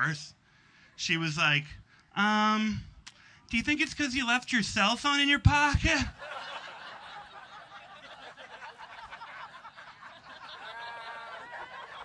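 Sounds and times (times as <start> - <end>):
audience laughing: 6.1 - 12.0.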